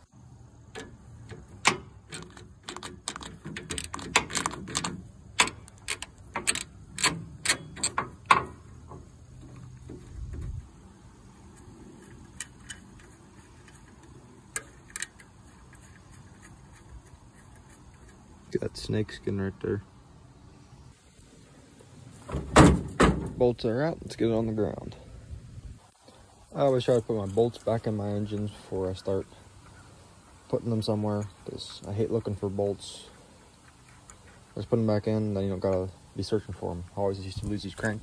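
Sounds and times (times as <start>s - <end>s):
socket wrench clicking on metal: 0.7s - 8.6s, 12.1s - 16.8s.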